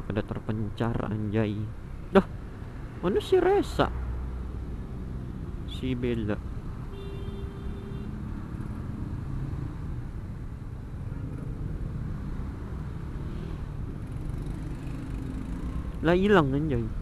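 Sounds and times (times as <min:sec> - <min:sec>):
slow road traffic rumble: 0:00.0 - 0:17.0
motorcycle engine: 0:13.3 - 0:15.9.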